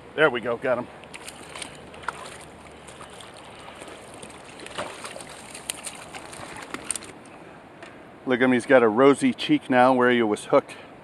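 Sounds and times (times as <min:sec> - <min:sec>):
river water rushing: 0:00.9 - 0:08.2
fish splashing at water surface: 0:01.0 - 0:07.2.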